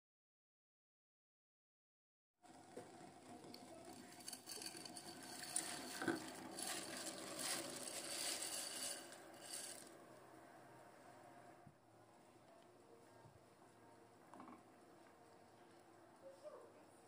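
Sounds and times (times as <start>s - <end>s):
boiling water hiss: 2.4s - 11.6s
dry pasta rattling: 3.8s - 10.0s.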